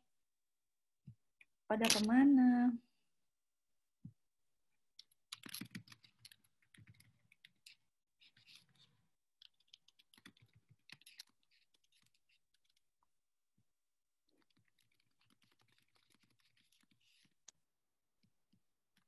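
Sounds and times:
keyboard typing: 5.0 - 7.6.

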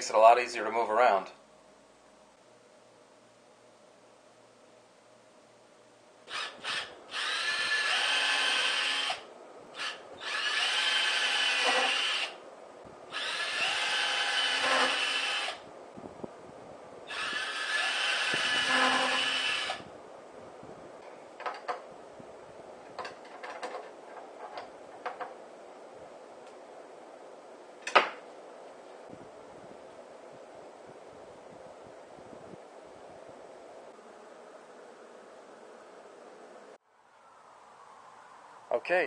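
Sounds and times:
cordless drill running: 6.3 - 9.2, 9.8 - 12.4, 13.1 - 15.6, 17.1 - 19.9.

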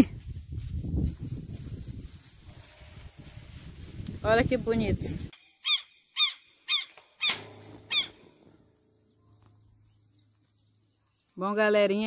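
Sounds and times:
lapwing short sharp calls: 5.4 - 8.4.

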